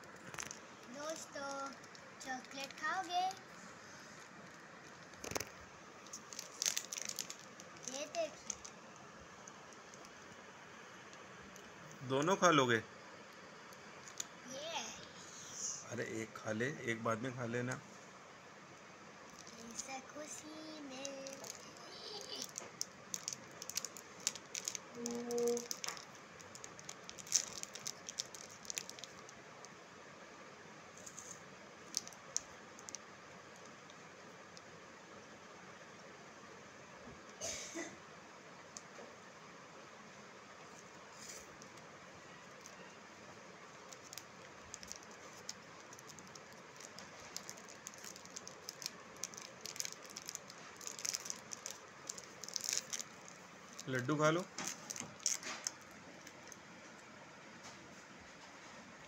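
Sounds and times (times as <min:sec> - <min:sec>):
sweet wrapper clicks and crackles: 0:00.0 - 0:12.4, 0:13.3 - 0:15.1, 0:19.2 - 0:29.8, 0:31.0 - 0:34.7, 0:40.6 - 0:43.0, 0:43.6 - 0:56.7.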